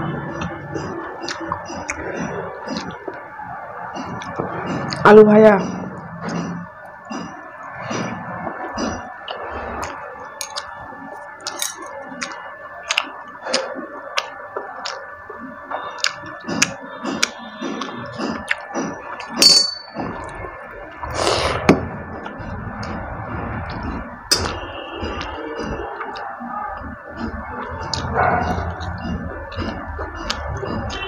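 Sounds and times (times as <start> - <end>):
chewing and smacking: 0.4 - 3.2, 8.7 - 10.8, 11.4 - 19.4, 23.7 - 31.0
ringing metal clink: 19.4 - 20.0.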